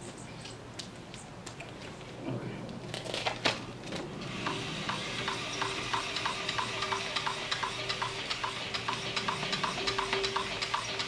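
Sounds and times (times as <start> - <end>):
injection pump humming and hissing: 4.2 - 11.0
pump clicking: 4.4 - 11.0.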